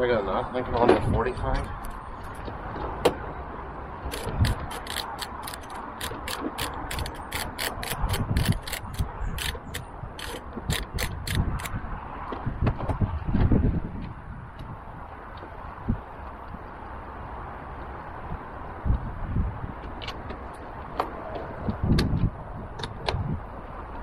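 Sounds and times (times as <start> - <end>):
ratchet clicking: 4.1 - 11.7.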